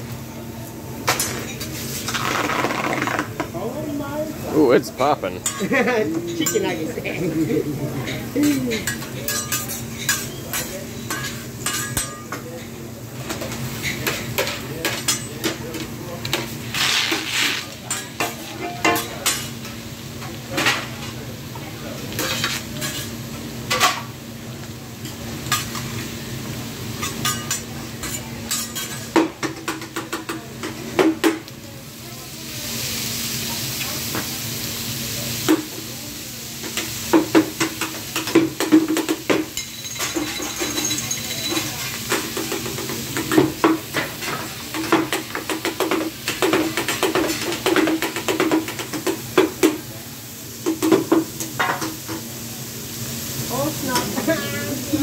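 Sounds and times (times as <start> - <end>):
food sizzling on hot griddle: 0.0 - 55.0
metal spatulas clinking on griddle: 1.1 - 1.7, 5.4 - 6.8, 8.0 - 16.5, 17.1 - 19.8, 22.1 - 23.1, 25.0 - 25.9, 27.0 - 31.4, 37.6 - 49.1.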